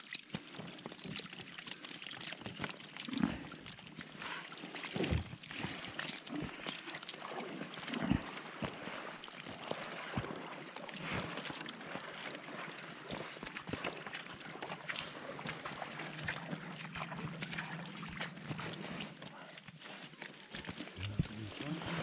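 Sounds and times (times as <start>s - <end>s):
wet fish slapping in net: 4.9s - 19.2s.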